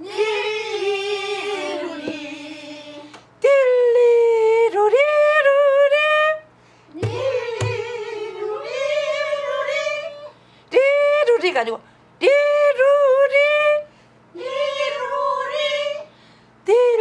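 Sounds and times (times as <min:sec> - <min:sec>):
barrel drum strokes: 0:07.0 - 0:08.0
woman singing folk song: 0:16.6 - 0:17.0.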